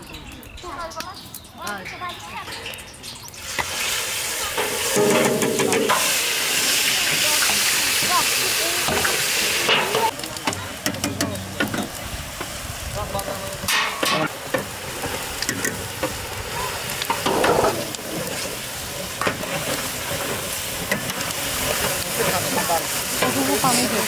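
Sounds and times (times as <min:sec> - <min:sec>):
paste and spices sizzling: 0:00.5 - 0:24.0
metal paddle scraping a pan: 0:04.6 - 0:06.2.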